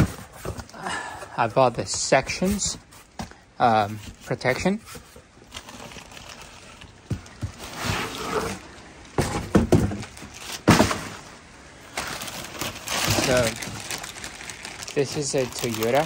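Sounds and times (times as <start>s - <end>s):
cardboard scraping: 0.0s - 0.8s, 1.5s - 11.2s
plastic rustling: 0.0s - 16.0s.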